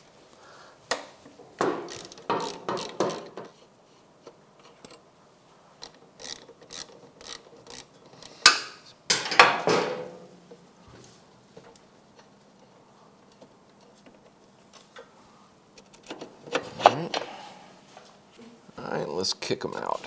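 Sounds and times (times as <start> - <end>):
ratchet wrench clicking: 1.8 - 3.6, 5.8 - 8.5.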